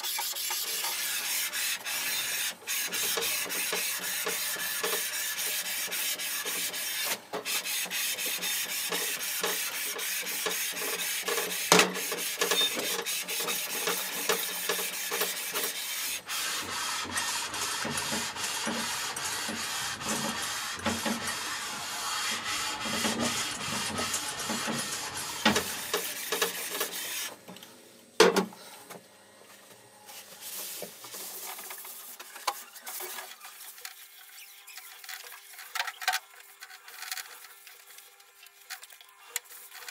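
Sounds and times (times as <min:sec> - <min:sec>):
steel scraping over abrasive plate: 0:00.0 - 0:27.3.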